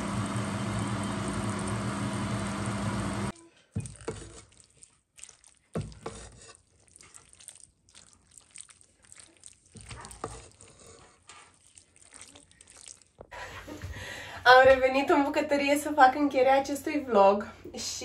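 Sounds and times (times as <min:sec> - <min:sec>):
spatula stirring pasta sauce: 0:03.3 - 0:13.8
spatula scraping and tapping pan: 0:03.7 - 0:04.6, 0:05.7 - 0:06.9, 0:09.7 - 0:11.6.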